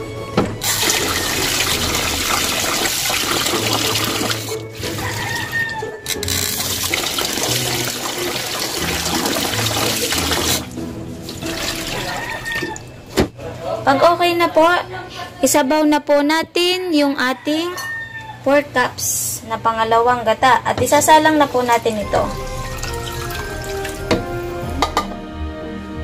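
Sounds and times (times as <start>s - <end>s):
soft background music: 0.0s - 13.2s, 20.5s - 26.0s
rice being rinsed: 0.6s - 12.9s, 21.4s - 24.6s
tap water running into sink: 0.6s - 12.9s, 21.7s - 25.0s.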